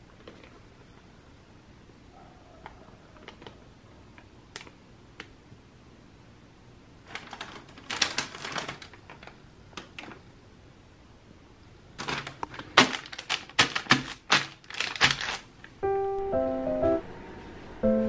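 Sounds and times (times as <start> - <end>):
snack bag crinkling: 7.0 - 10.2, 12.0 - 15.8.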